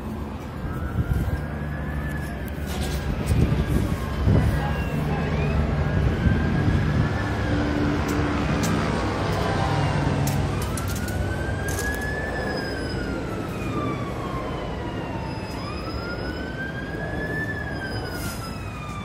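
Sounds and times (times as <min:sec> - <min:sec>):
low rumble of vehicles: 0:00.0 - 0:19.0
police siren wailing: 0:00.0 - 0:19.0.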